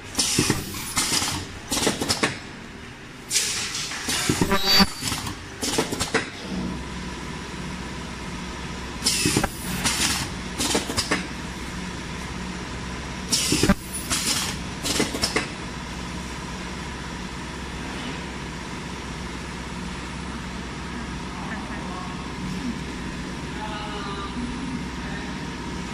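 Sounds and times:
pneumatic air hisses: 0:00.1 - 0:02.0, 0:03.3 - 0:05.8, 0:09.0 - 0:10.9, 0:13.3 - 0:15.0
welding machine humming: 0:04.0 - 0:05.6.

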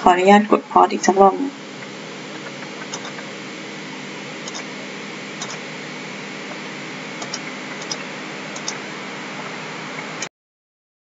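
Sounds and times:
faint hum: 0:00.0 - 0:10.3
steady background hiss: 0:00.0 - 0:10.3
computer mouse clicks: 0:02.4 - 0:03.3, 0:04.4 - 0:04.7, 0:05.4 - 0:05.6, 0:07.2 - 0:08.8.

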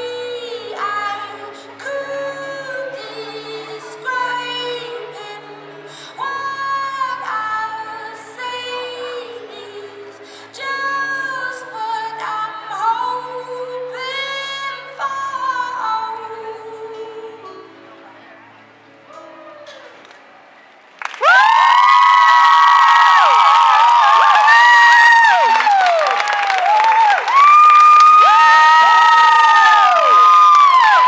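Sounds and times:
woman singing long notes: 0:00.0 - 0:17.9
low musical accompaniment: 0:00.0 - 0:21.9.

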